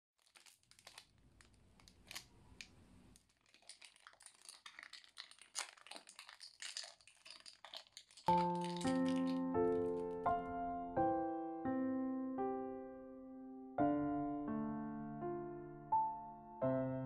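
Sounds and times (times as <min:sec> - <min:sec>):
plastic wrapper crinkling: 0:00.2 - 0:10.5
piano music: 0:08.3 - 0:17.0.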